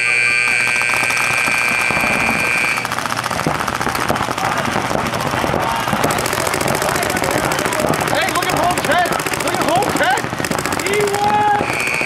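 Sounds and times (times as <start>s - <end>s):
buzzer high tone: 0.0s - 2.9s, 11.6s - 12.0s
paintball markers popping: 0.4s - 12.0s.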